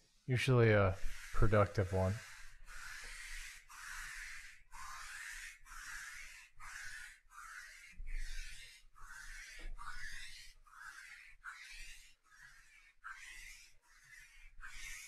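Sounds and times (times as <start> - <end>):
lint roller rasping on cloth: 0.0 - 15.0.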